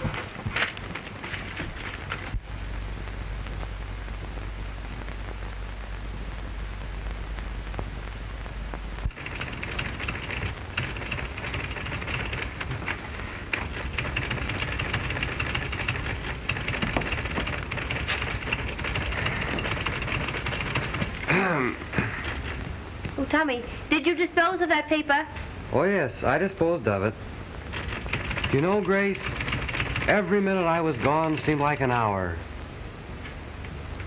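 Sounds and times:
low hum: 0.0 - 24.6
film soundtrack hiss and crackle: 0.0 - 34.0
scattered clicks: 6.3 - 21.3, 27.6 - 31.9.

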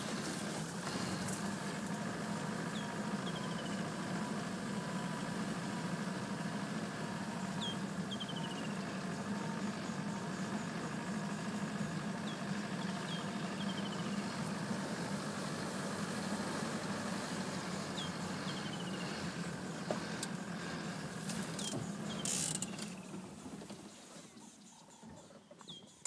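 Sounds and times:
vehicle engine driving through grass: 0.0 - 26.0
bird chirps: 2.7 - 3.9, 7.4 - 14.4, 17.7 - 23.2, 23.8 - 26.0.

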